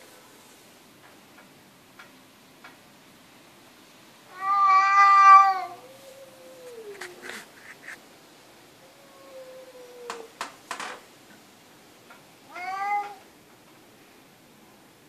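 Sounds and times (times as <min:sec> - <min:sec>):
cat meowing: 0:04.3 - 0:07.3, 0:12.4 - 0:13.3.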